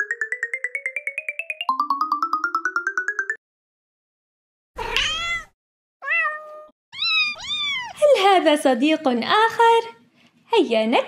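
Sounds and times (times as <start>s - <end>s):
cat meowing: 4.8s - 8.0s.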